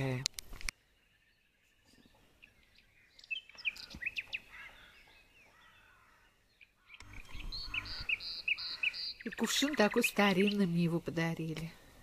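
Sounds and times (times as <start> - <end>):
songbirds chirping: 0.0 - 12.0.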